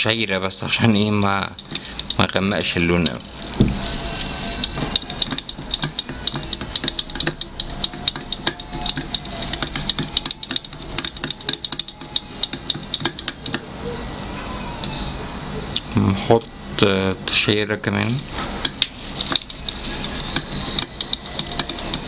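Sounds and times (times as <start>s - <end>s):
stick stirring resin in plastic cup: 0.9s - 14.3s, 18.2s - 22.0s.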